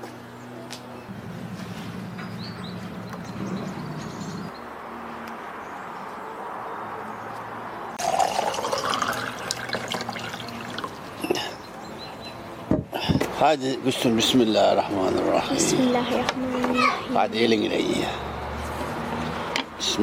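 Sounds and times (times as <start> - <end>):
water pouring into a cup: 8.0 - 11.0.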